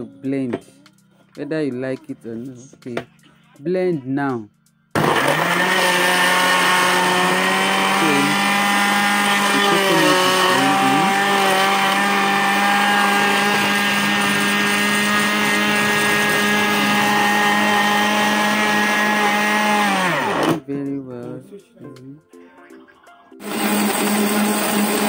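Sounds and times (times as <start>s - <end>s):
blender running at high speed: 5.0s - 20.6s, 23.4s - 25.0s.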